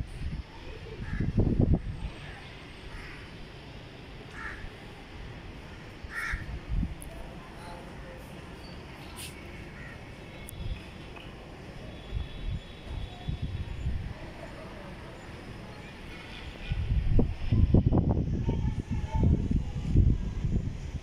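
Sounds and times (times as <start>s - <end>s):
crows cawing: 2.9s - 3.3s, 4.3s - 4.7s, 6.1s - 6.5s.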